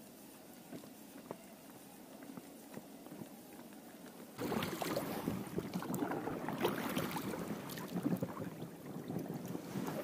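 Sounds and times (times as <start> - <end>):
oar dipping and splashing: 4.4 - 10.0
water slapping against hull: 4.4 - 10.0.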